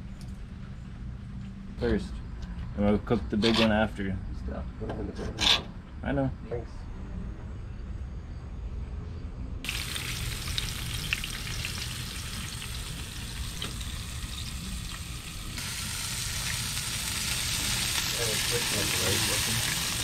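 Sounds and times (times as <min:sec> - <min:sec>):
fish frying in hot oil: 0:09.6 - 0:20.0.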